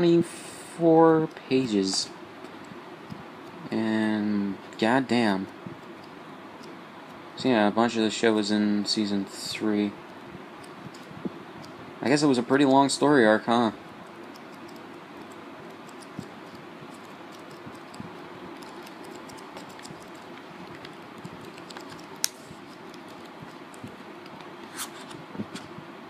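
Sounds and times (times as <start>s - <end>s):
soft steady hiss: 0.0s - 26.0s
book pages riffling: 18.5s - 25.7s.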